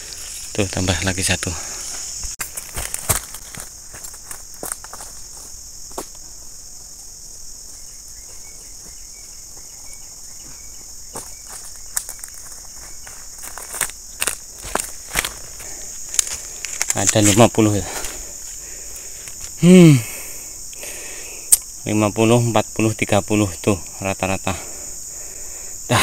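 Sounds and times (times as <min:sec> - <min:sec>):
high-pitched insect chorus: 0:00.0 - 0:26.0
footsteps on leaf litter: 0:01.8 - 0:06.2, 0:11.1 - 0:18.6.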